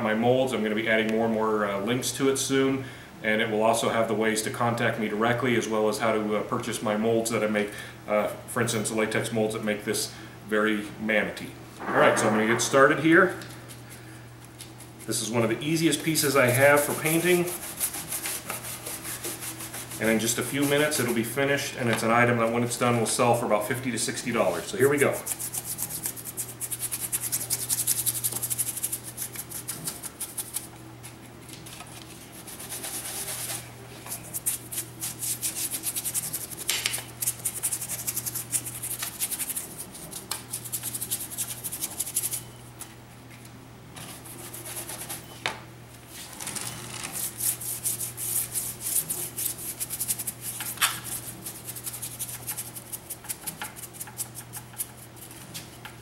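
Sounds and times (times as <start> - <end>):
steady low hum: 0.0 - 56.0
paintbrush scrubbing on concrete: 16.1 - 21.2, 24.8 - 30.7, 32.3 - 42.4, 44.1 - 45.3, 47.2 - 55.6.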